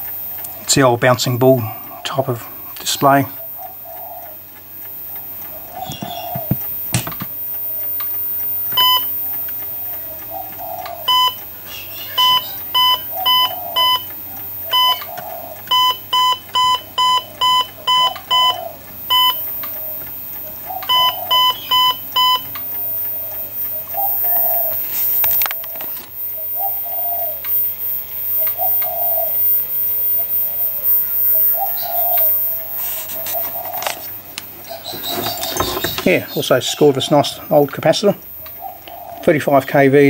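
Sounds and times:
monitor beeping: 0.0 - 40.0.

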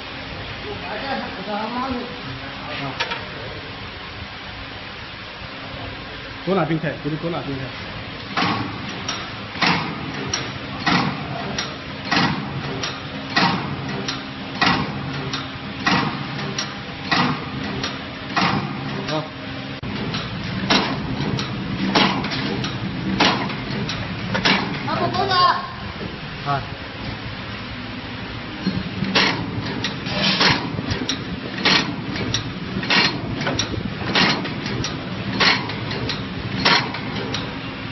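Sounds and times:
low motor hum: 3.3 - 37.9
sharp mechanical clack: 8.2 - 24.9, 28.6 - 37.6.

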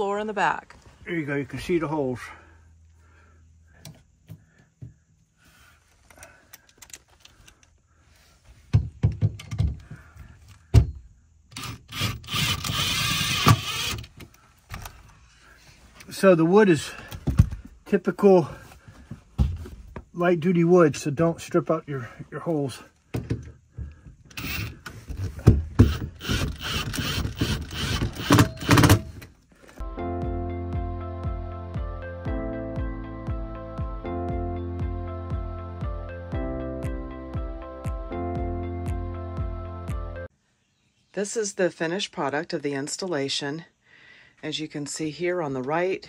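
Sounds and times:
thumps and knocks on metal frame: 8.6 - 11.1, 18.9 - 20.1, 25.0 - 26.2
cordless drill running: 11.6 - 14.1, 24.3 - 24.8, 25.8 - 29.1.

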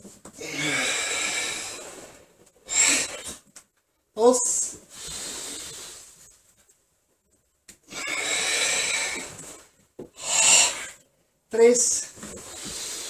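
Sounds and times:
forceful breathing: 0.4 - 3.4, 4.8 - 6.3, 7.9 - 11.0.

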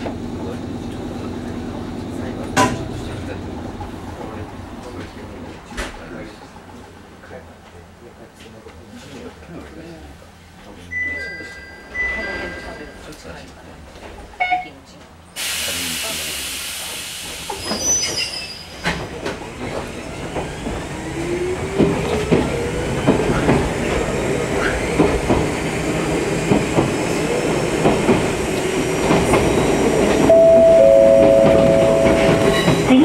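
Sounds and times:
train rumble: 0.0 - 9.0, 11.9 - 33.0
two-note tone: 30.2 - 32.8.

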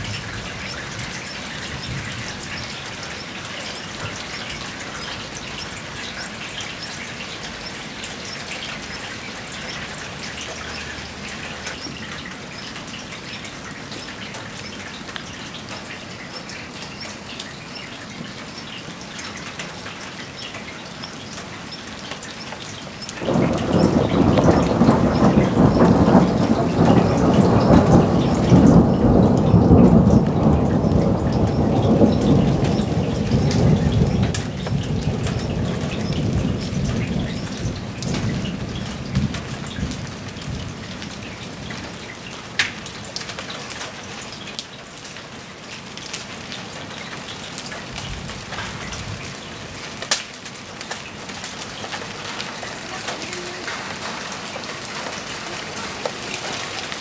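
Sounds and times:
rain pattering on foliage: 0.0 - 57.0
thunder rumbling: 23.2 - 42.0.

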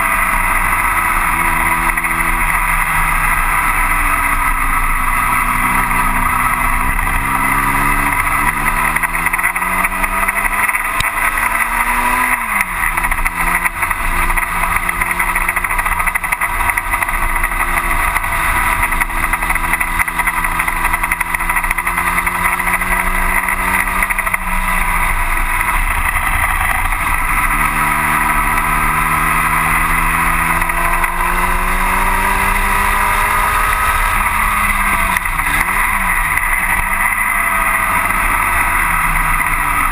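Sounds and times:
racing car engine: 0.0 - 39.9
steady rushing noise: 0.0 - 39.9.

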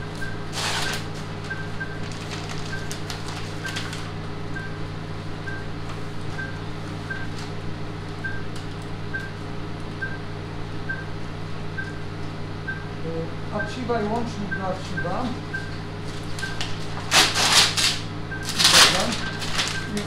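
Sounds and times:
low equipment hum: 0.0 - 20.0
patient monitor beeping: 0.1 - 4.8, 5.4 - 7.4, 8.2 - 8.5, 9.1 - 9.4, 10.0 - 10.3, 10.9 - 11.2, 11.8 - 16.8, 18.3 - 20.0
plastic rustling: 2.0 - 4.1, 16.1 - 20.0.

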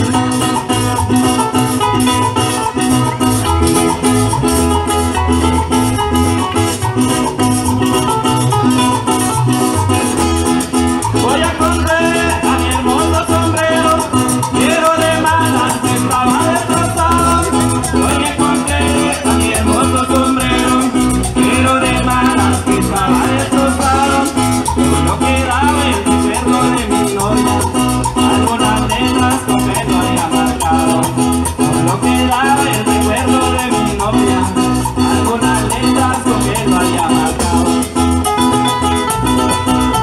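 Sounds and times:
bass: 0.0 - 40.0
shaker beat: 0.0 - 40.0
strummed acoustic guitars: 0.0 - 40.0
person singing: 11.0 - 38.2.

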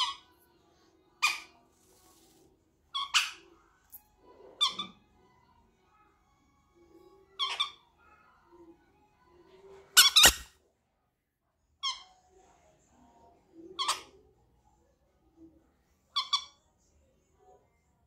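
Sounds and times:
parrots squeaky calls: 0.0 - 0.3, 1.2 - 1.6, 2.9 - 3.6, 4.6 - 5.1, 7.2 - 8.0, 10.0 - 10.5, 11.8 - 12.1, 13.8 - 14.2, 16.1 - 16.6.

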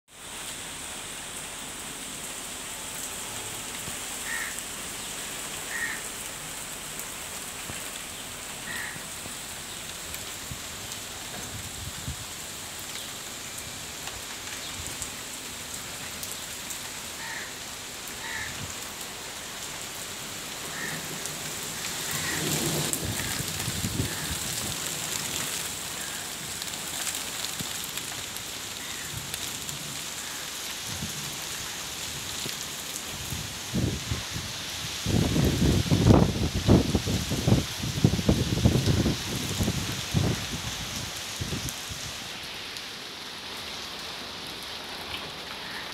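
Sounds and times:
steady rain falling: 0.1 - 45.9.

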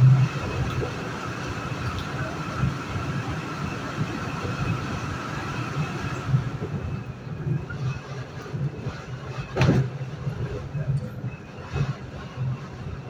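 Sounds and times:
train wheels rumbling on rail: 0.0 - 13.0
sharp clunk: 9.6 - 10.0.

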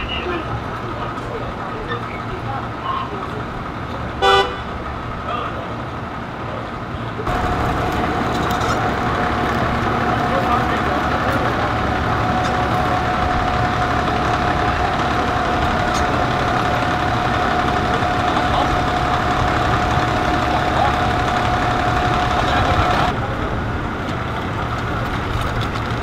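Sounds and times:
vehicle engines idling: 0.0 - 26.0.

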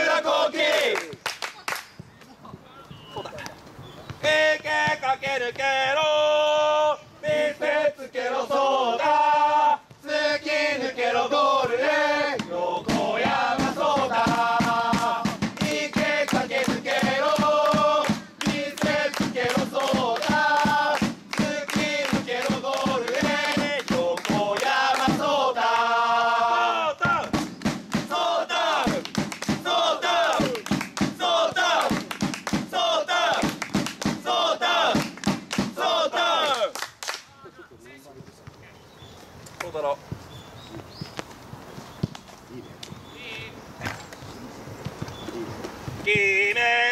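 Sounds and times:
football supporters chanting: 0.0 - 1.3, 4.1 - 36.8, 46.0 - 46.9
steady drum beat: 12.8 - 25.4, 27.0 - 35.9.

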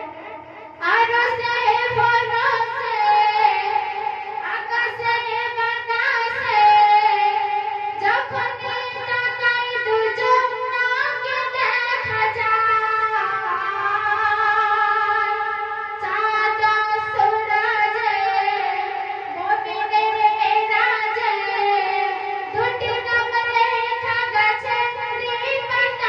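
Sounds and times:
woman singing devotional song: 0.0 - 26.0.

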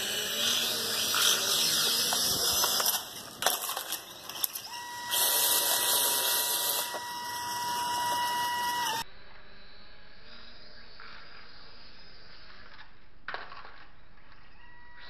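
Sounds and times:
drone propellers buzzing: 0.0 - 3.4, 4.7 - 9.0
drones clattering onto concrete: 1.1 - 4.7
steady high tone: 4.6 - 9.8.

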